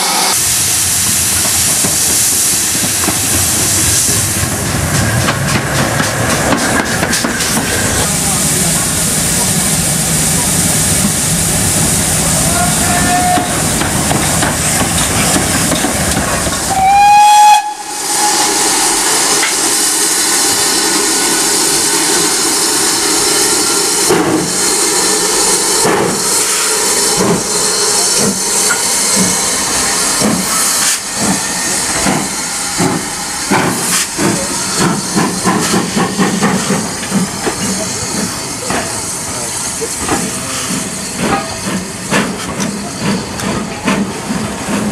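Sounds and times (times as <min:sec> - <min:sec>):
steam hissing: 0:00.0 - 0:44.9
steam whistle: 0:12.5 - 0:13.6, 0:16.7 - 0:18.9.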